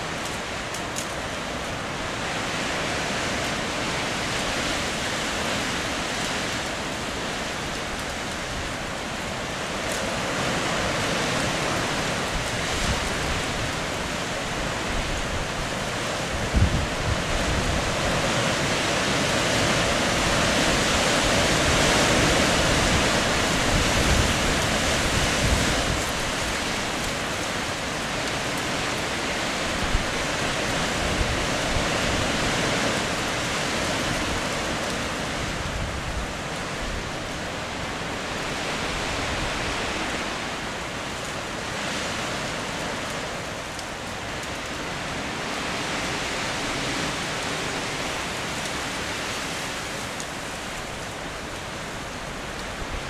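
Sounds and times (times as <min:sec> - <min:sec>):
wind buffeting microphone: 0:10.3 - 0:40.5.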